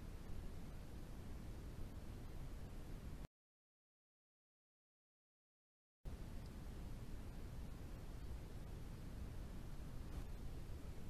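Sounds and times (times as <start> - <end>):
low rumble and hiss: 0.0 - 3.3, 6.1 - 11.0.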